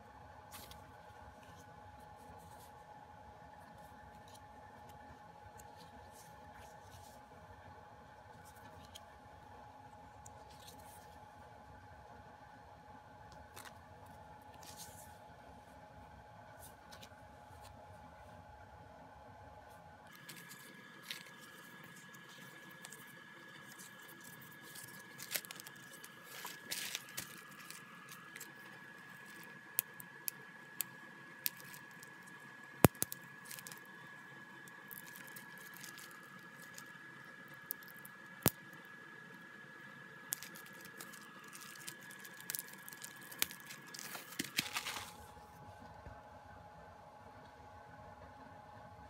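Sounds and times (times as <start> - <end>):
plastic and paper crinkling: 20.1 - 38.2, 40.3 - 45.4.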